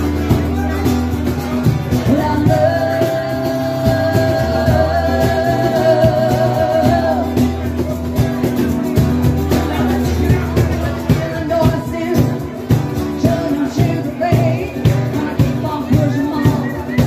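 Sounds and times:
acoustic guitars strumming: 0:00.0 - 0:17.0
woman singing: 0:02.0 - 0:07.7, 0:11.0 - 0:17.0.

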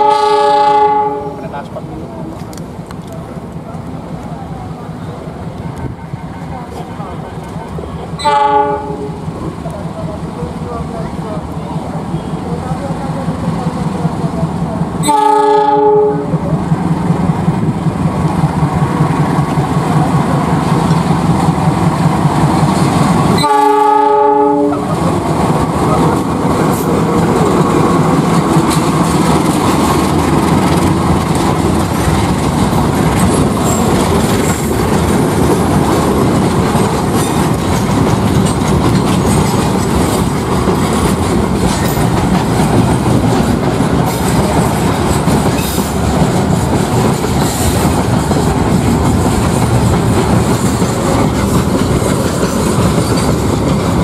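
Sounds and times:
locomotive horn blasts: 0:00.0 - 0:01.4, 0:08.2 - 0:09.2, 0:15.0 - 0:16.4, 0:23.4 - 0:24.9
locomotive engine under load: 0:24.6 - 0:54.0
freight wagons rumbling by: 0:24.7 - 0:54.0.

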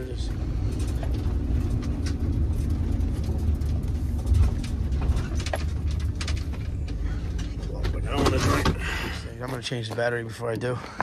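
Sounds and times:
van engine rumble: 0:00.0 - 0:10.8
road noise: 0:00.0 - 0:11.0.

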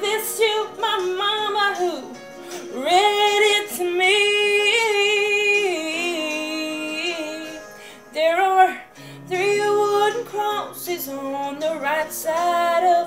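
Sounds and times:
woman singing country song: 0:00.0 - 0:13.0.

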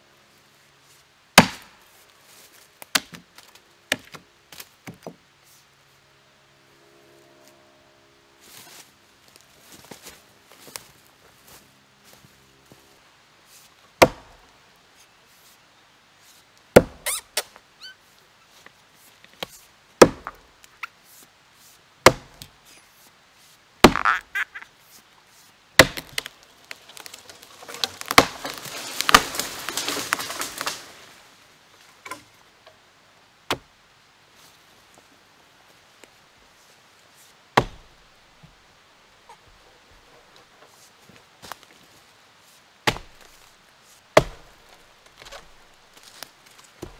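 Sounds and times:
axe chopping into wood: 0:01.4 - 0:01.8, 0:14.0 - 0:14.4, 0:16.8 - 0:17.0, 0:20.0 - 0:20.4, 0:22.0 - 0:22.5, 0:23.8 - 0:24.2, 0:25.8 - 0:26.3, 0:27.8 - 0:30.7, 0:37.6 - 0:37.9, 0:42.9 - 0:43.4, 0:44.2 - 0:45.5
tree limb cracking and breaking: 0:25.8 - 0:31.2.

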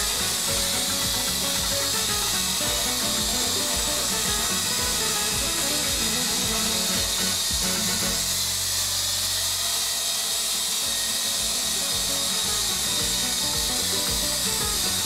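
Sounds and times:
music: 0:00.0 - 0:09.8, 0:10.6 - 0:15.0
rc helicopter rotors buzzing: 0:00.0 - 0:15.0.

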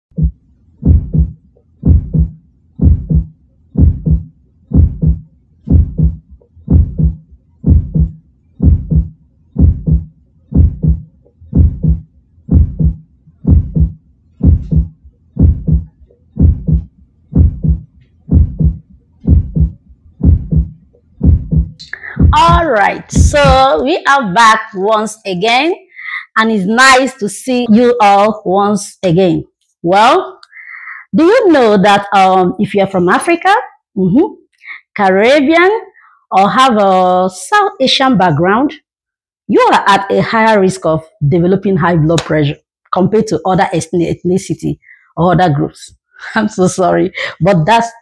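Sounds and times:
heartbeat thumps: 0:00.0 - 0:23.8.

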